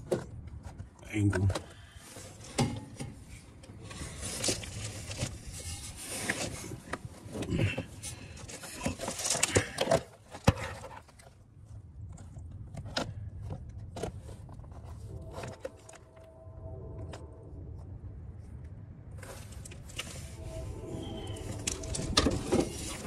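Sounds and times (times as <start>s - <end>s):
equipment handling scrapes and clicks: 2.0s - 11.4s, 12.2s - 16.3s, 19.2s - 23.0s.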